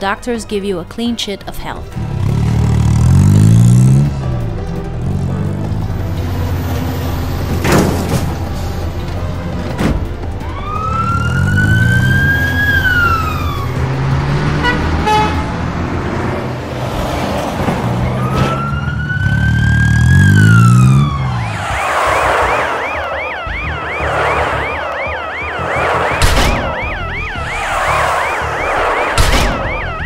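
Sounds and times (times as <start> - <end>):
vehicle engines revving: 1.9 - 30.0
cartoon siren wailing: 10.4 - 13.9, 18.1 - 30.0
warbling police siren: 10.4 - 15.0, 17.8 - 30.0.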